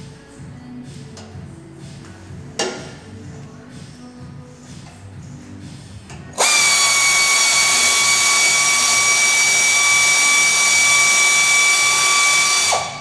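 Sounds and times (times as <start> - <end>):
power tool whining: 6.4 - 13.0.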